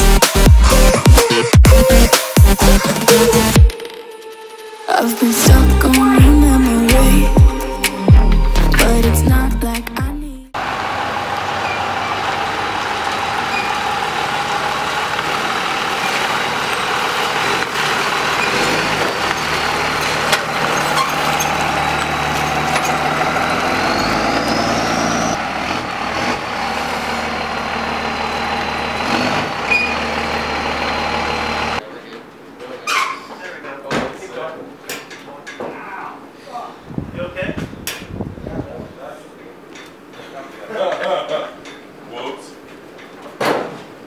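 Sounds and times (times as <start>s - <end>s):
road and tyre noise: 10.5s - 33.2s
truck engine running: 10.6s - 31.8s.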